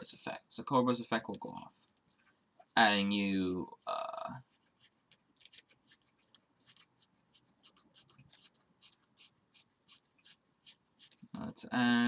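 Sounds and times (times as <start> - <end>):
cards swishing: 3.9 - 12.0.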